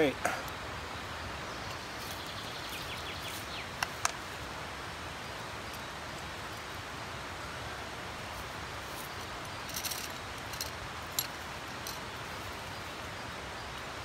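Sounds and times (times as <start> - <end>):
forest ambience: 0.0 - 14.0
bird chirps: 1.4 - 3.9.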